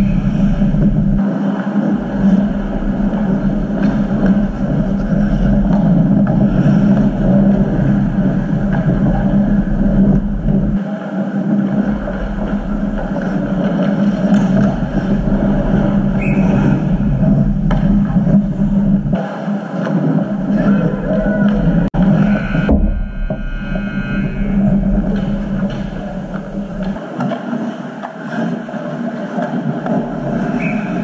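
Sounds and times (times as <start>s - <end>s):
ice rink hum and rumble: 0.0s - 31.0s
hockey sticks and puck clacking: 1.2s - 9.6s, 10.8s - 16.9s, 25.1s - 31.0s.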